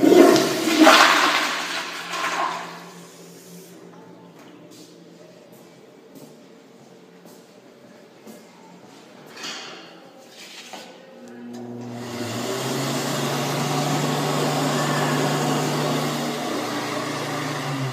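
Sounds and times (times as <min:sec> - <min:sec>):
electric hand dryer running: 0:11.6 - 0:17.9.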